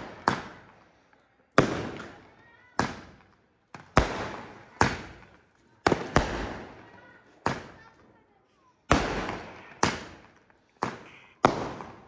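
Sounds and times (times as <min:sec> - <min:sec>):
firecrackers banging: 0:00.0 - 0:08.2, 0:08.8 - 0:12.0.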